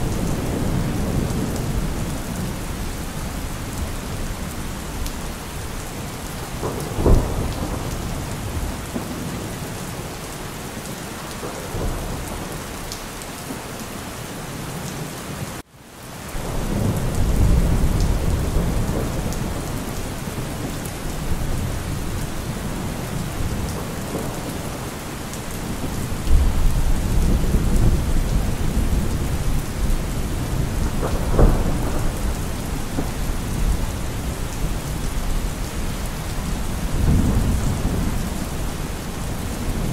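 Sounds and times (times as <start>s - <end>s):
steady rain: 0.0s - 39.9s
rolling thunder: 6.5s - 9.6s, 16.4s - 39.9s.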